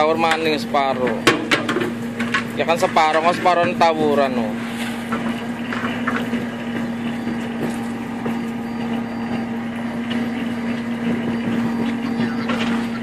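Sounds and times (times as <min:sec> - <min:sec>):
boat engine humming: 0:00.0 - 0:13.0.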